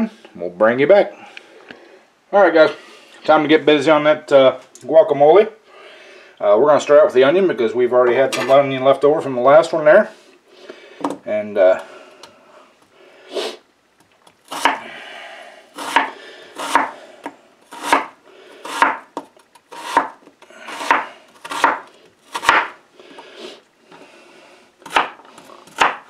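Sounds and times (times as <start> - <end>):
knife slicing onion: 14.5 - 14.8, 15.8 - 17.0, 17.7 - 22.8, 24.8 - 26.0.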